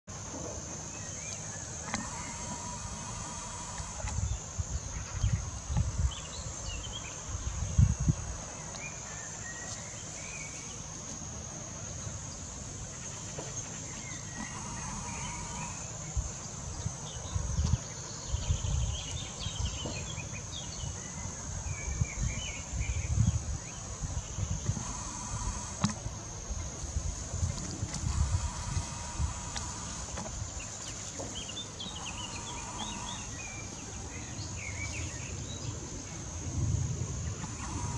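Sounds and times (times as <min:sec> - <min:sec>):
insects chirring: 0:00.1 - 0:37.9
low rumbles on microphone: 0:14.5 - 0:37.9.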